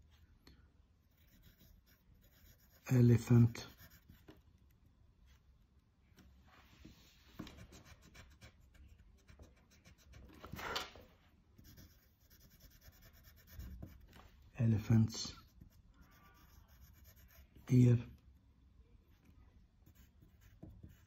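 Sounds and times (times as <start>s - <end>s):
pencil scratching on paper: 1.1s - 4.4s, 7.4s - 10.7s, 11.6s - 14.2s, 14.8s - 17.7s, 19.8s - 21.0s
eraser rubbing paper: 11.6s - 14.2s.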